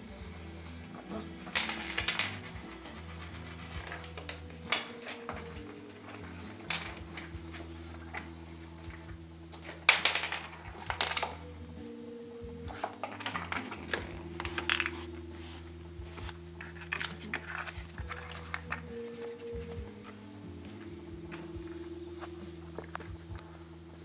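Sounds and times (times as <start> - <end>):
bottle cap clattering across floor: 1.5 - 5.8.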